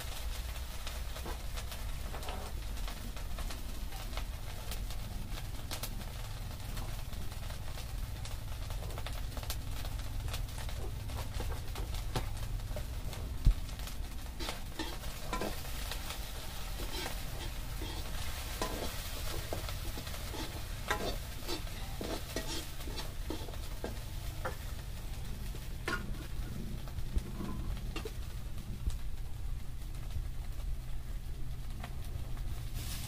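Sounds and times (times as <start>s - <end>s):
food sizzling in oil: 0.0s - 29.3s, 32.3s - 33.0s
utensil scraping pan: 14.3s - 24.8s, 25.5s - 28.2s.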